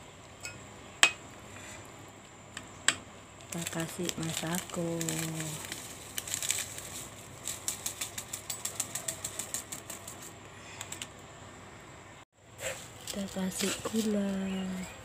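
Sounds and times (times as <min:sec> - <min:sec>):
plastic sachet rustling: 0:03.4 - 0:10.3, 0:12.9 - 0:14.8.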